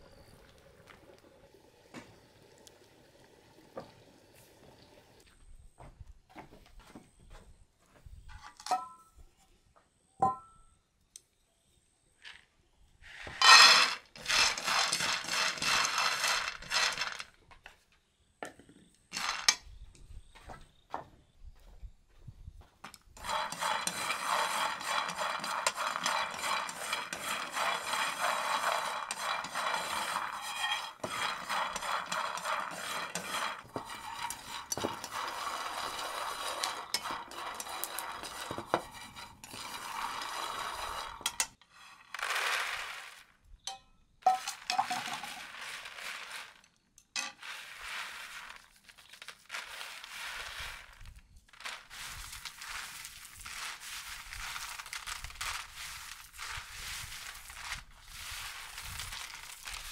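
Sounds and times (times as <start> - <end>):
peanuts rubbed on bamboo tray: 13.0 - 17.4, 19.1 - 19.6, 23.2 - 43.4, 44.4 - 59.9
peanuts rattling in a frying pan: 13.2 - 17.6, 19.1 - 19.6, 23.2 - 43.4, 44.2 - 59.9.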